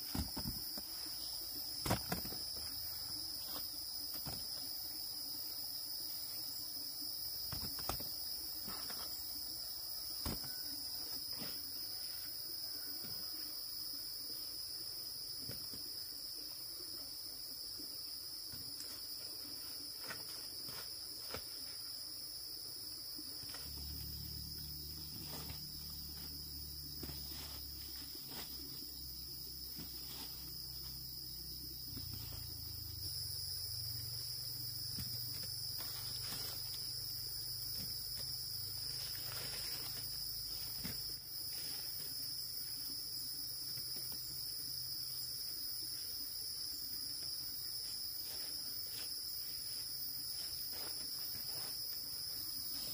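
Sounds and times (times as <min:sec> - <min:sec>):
insects chorus: 0:00.0 - 0:52.9
low hum: 0:23.4 - 0:28.5.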